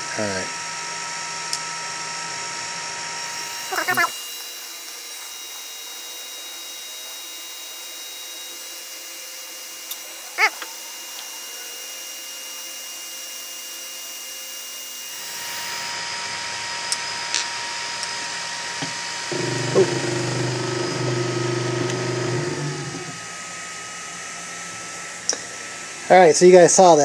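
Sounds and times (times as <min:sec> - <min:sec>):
low motor buzz: 0:03.1 - 0:07.1, 0:18.8 - 0:23.8
stepper motors whining: 0:03.2 - 0:12.7, 0:18.8 - 0:23.4.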